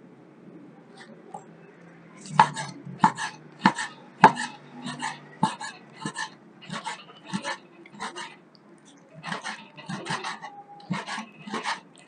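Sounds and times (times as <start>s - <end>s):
cleaver chopping meat on wood: 2.4s - 4.5s.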